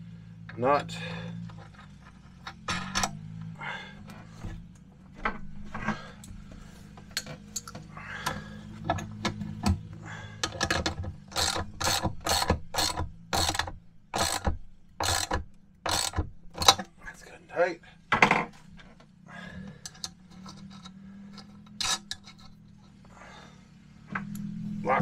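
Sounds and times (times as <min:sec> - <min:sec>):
metal nut clicking on bolt: 0:10.4 - 0:16.9, 0:19.8 - 0:22.6.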